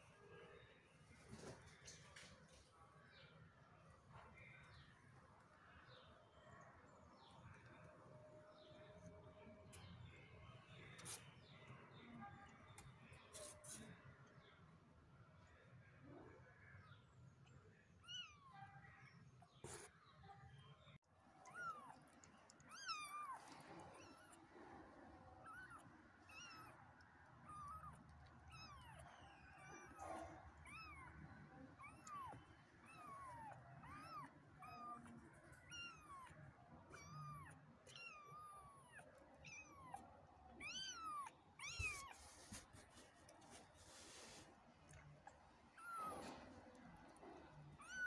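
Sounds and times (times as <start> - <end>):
kittens mewing: 25.3 - 42.9, 45.0 - 48.0.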